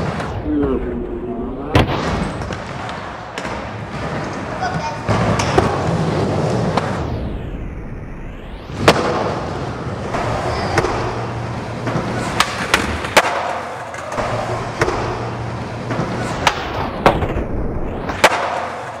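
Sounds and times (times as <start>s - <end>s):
skateboard wheels rolling on concrete: 2.0s - 7.1s, 8.7s - 19.0s
skateboard clacks: 10.1s - 17.3s, 18.1s - 19.0s.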